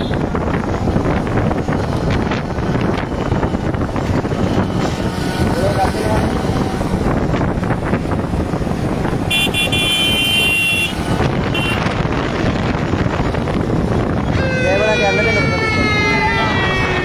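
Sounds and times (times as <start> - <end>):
vehicle engine and wind rush: 0.0 - 17.0
vehicle horn honking: 9.3 - 11.9.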